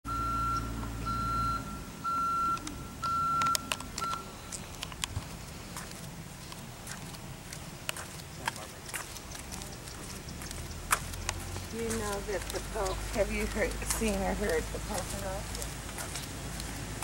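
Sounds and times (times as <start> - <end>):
reversing alarm beeping: 0.1 - 4.5
low engine hum: 0.1 - 17.0
faint clicks: 7.5 - 16.8.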